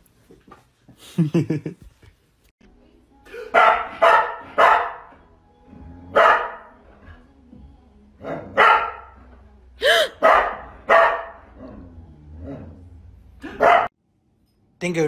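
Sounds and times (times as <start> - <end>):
dog barking: 3.5 - 5.1, 6.1 - 6.8, 8.3 - 9.2, 10.1 - 11.6, 13.4 - 13.9.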